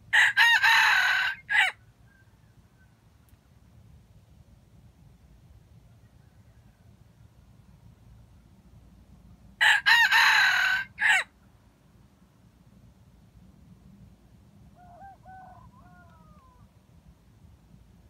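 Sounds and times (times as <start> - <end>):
rooster crowing: 0.1 - 2.3, 9.6 - 11.3, 14.8 - 16.7.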